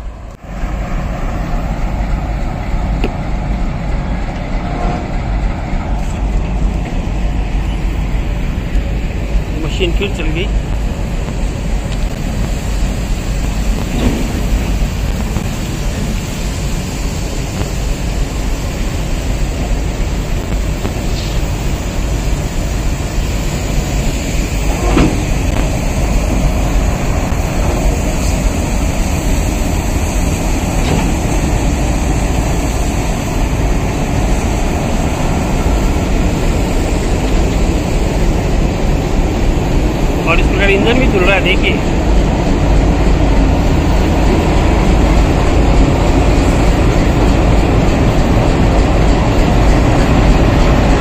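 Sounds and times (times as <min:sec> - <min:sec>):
diesel locomotive engine running: 0:00.0 - 0:51.0
water sprays hissing: 0:08.8 - 0:41.9.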